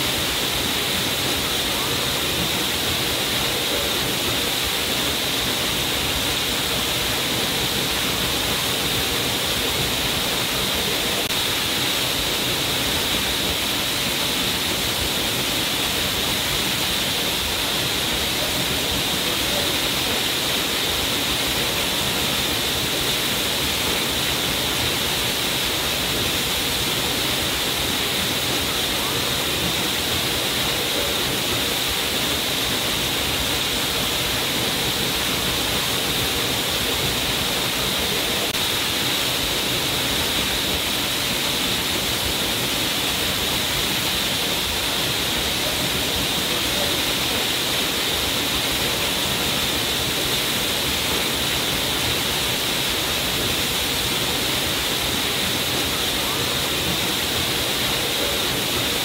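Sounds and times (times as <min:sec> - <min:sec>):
waterfall rushing: 0:00.0 - 0:59.0.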